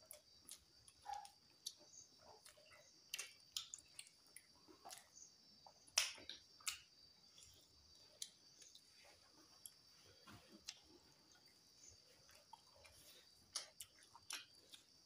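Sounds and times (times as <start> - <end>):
wet chewing and lip smacks: 0.0 - 9.0, 12.2 - 15.0.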